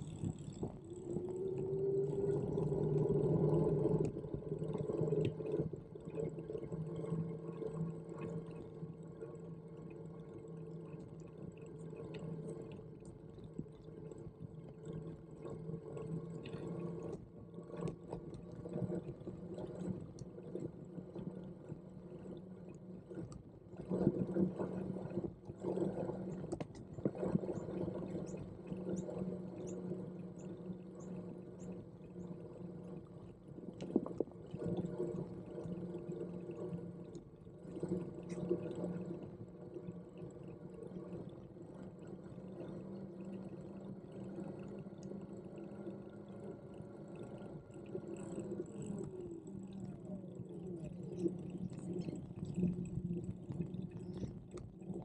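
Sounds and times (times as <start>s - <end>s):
electric hub motor whining: 0.0s - 5.9s.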